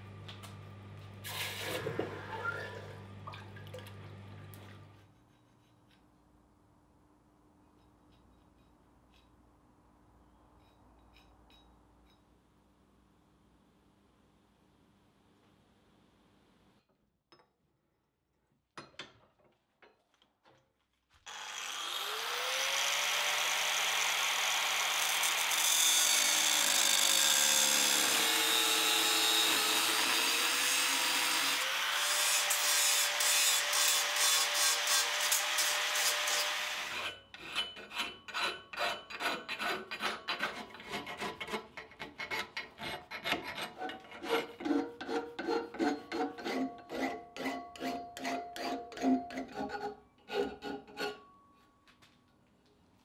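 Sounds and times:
power grinder cutting steel: 21.3s - 37.2s
hand file rasping on steel: 25.2s - 51.3s.

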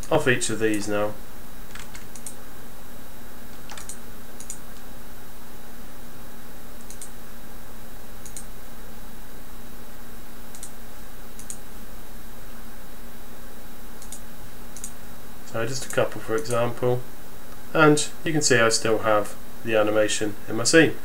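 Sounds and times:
low hum and hiss: 0.0s - 21.0s
computer mouse clicking: 1.7s - 2.4s, 3.5s - 4.8s, 6.8s - 7.1s, 8.2s - 8.5s, 10.5s - 10.7s, 11.4s - 11.6s, 14.0s - 14.2s, 14.8s - 15.0s.

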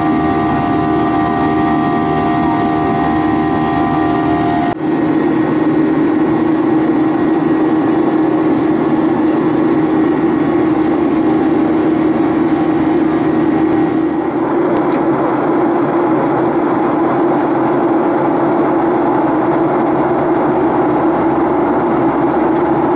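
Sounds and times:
faint whining tones: 0.0s - 5.7s
jet engine cabin noise: 0.0s - 22.9s.

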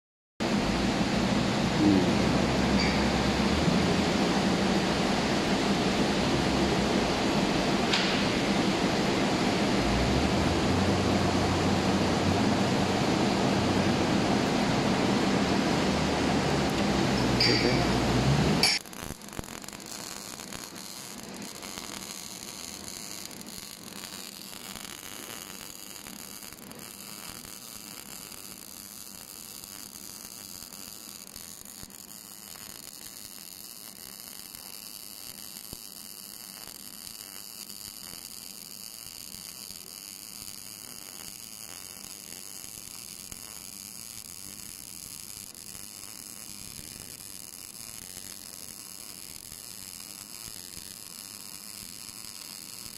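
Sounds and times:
welding arc crackling: 0.5s - 52.9s.

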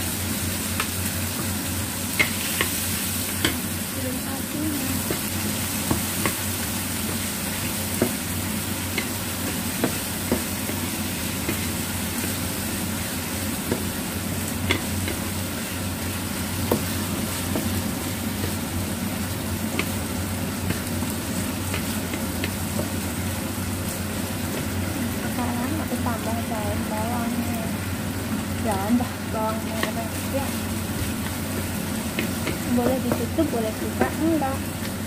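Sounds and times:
chicken sizzling in frying pan: 0.0s - 35.0s
spatula knocking against pan: 32.1s - 34.3s.

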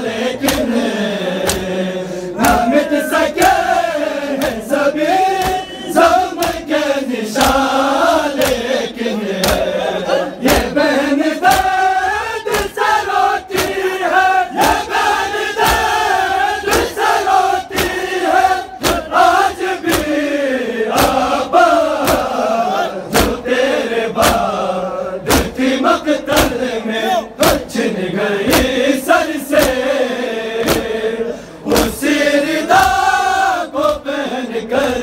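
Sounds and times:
crowd of men chanting: 0.0s - 35.0s
chest beating slaps: 0.4s - 0.7s, 1.4s - 1.8s, 2.4s - 6.8s, 7.4s - 9.8s, 10.4s - 20.2s, 20.9s - 22.4s, 23.0s - 23.5s, 24.1s - 24.6s, 25.2s - 25.6s, 26.3s - 26.6s, 28.4s - 28.8s, 29.5s - 29.9s, 30.6s - 31.0s, 31.7s - 32.0s.

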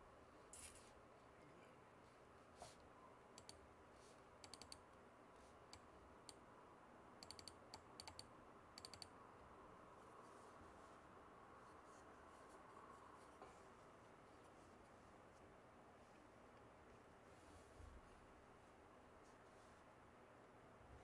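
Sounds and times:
soft clicks: 2.8s - 3.6s, 4.4s - 5.0s, 7.2s - 9.2s.

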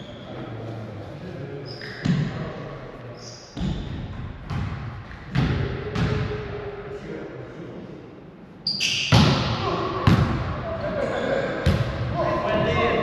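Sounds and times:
volleyball hits: 9.1s - 10.6s.

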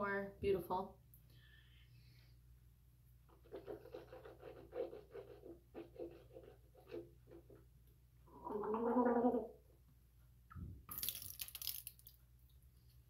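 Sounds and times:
person gargling: 8.3s - 9.6s.

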